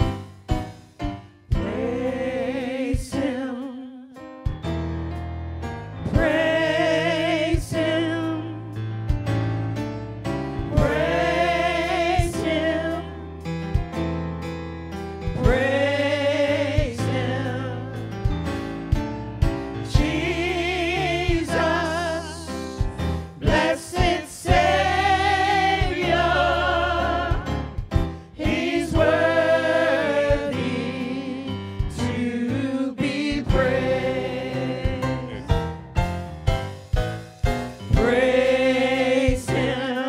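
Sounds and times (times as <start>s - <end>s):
people singing with vibrato: 1.5s - 4.1s, 6.1s - 8.6s, 10.7s - 13.2s, 15.4s - 18.0s, 19.9s - 35.9s, 37.8s - 40.0s.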